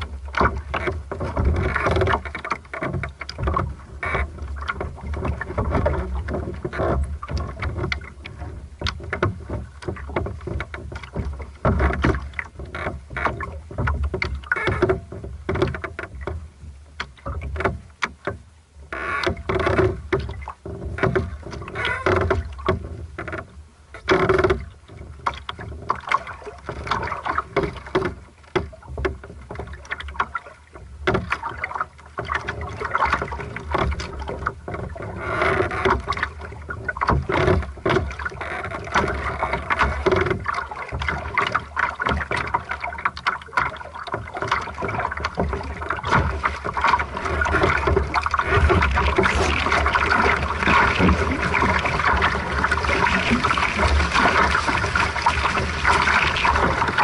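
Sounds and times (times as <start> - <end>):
water lapping against boat hull: 0.0 - 57.0.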